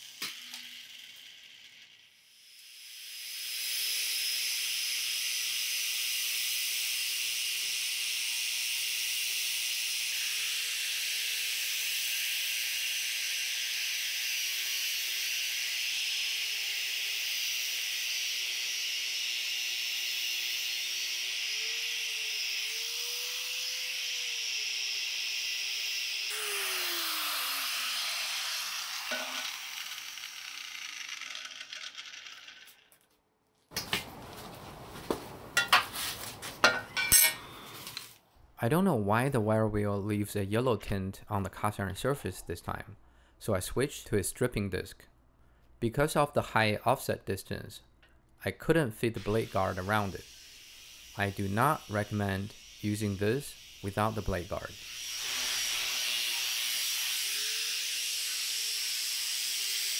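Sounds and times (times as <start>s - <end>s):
angle grinder wire brush scrubbing: 28.0s - 32.8s, 51.0s - 57.1s.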